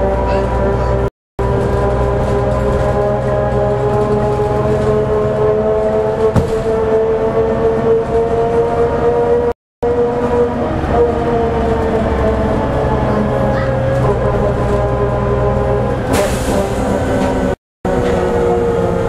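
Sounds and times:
bus gears whining: 0.0 - 19.0
bus rumble: 0.0 - 19.0.

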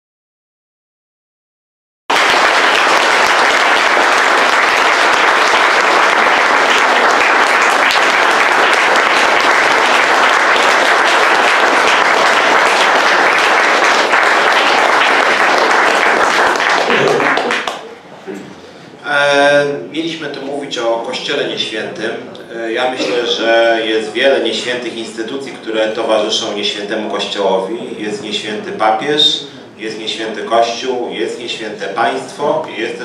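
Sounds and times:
audience applauding: 2.1 - 18.0.

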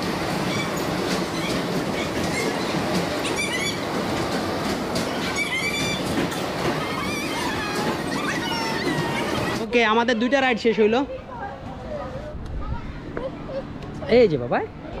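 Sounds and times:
amusement ride rolling rumble: 0.0 - 15.0
high wavering shrieks: 5.1 - 9.6.

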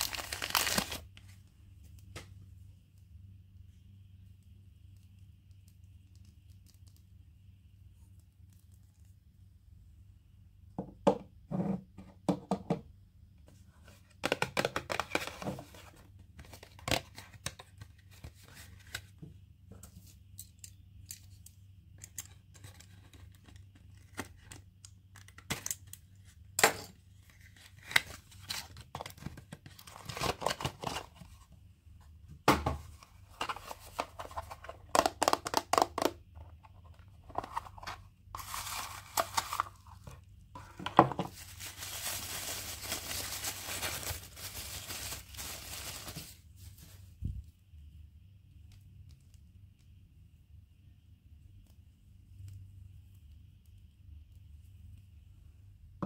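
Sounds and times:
wrapper tearing and crinkling: 0.0 - 1.2, 41.3 - 46.9.

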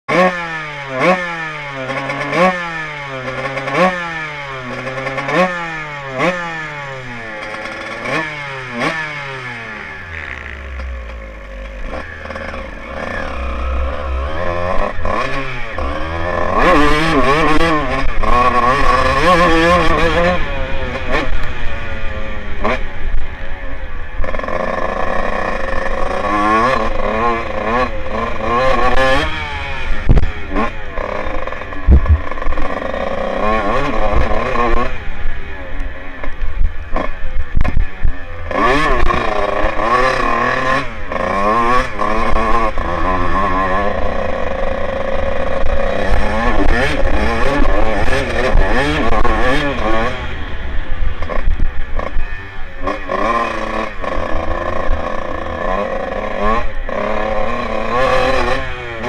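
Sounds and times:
two-stroke motorcycle engine revving: 0.1 - 59.0
wind rushing over microphone: 31.8 - 32.6.

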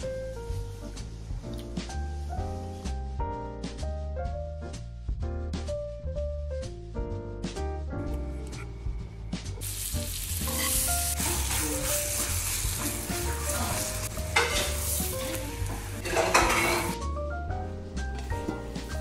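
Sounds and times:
background music: 0.0 - 19.0
butter sizzling in a frying pan: 9.6 - 17.0.

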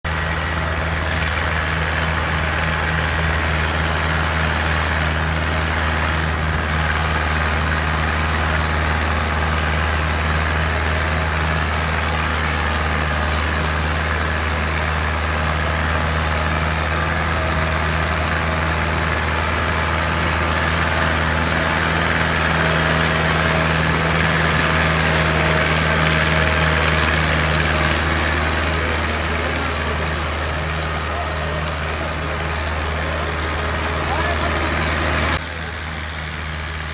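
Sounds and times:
tractor engine droning under load: 0.0 - 36.9.

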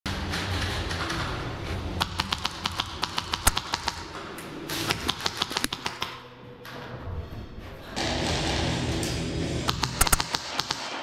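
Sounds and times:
rapid sharp clicks: 2.0 - 4.0, 4.9 - 6.2, 9.7 - 11.0.

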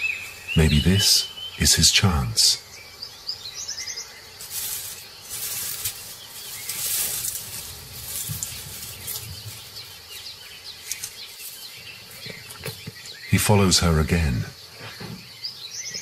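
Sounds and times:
faint bird chirps: 0.0 - 16.0
dry grass rustling: 4.3 - 13.0.

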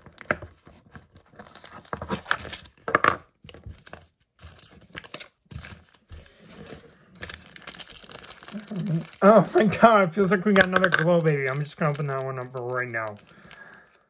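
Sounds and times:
packaging crinkling and tearing: 0.0 - 14.0.

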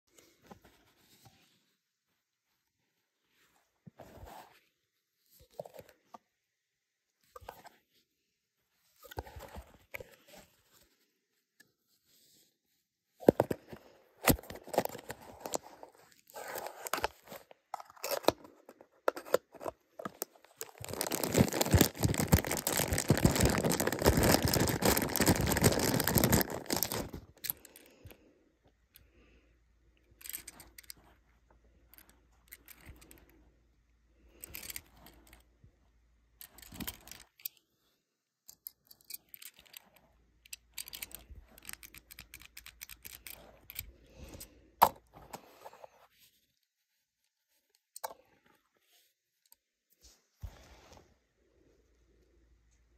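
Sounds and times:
packaging tearing and crinkling: 20.6 - 27.4.

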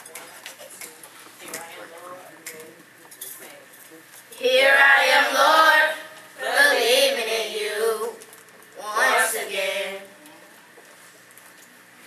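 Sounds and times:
youth choir singing: 4.4 - 8.2, 8.8 - 10.1.

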